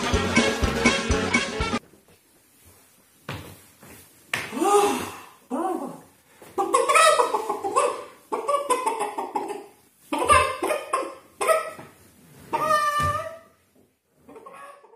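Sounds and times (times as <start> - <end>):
high-pitched animal-like voice: 5.5 - 6.1, 12.5 - 13.5.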